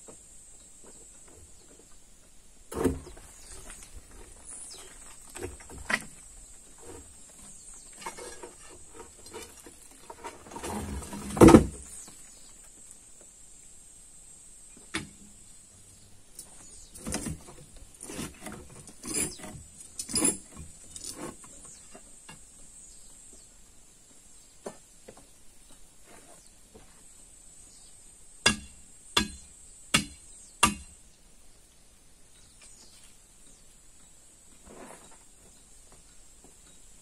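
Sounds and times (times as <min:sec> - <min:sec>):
hammer striking stone: 0:28.4 - 0:31.0.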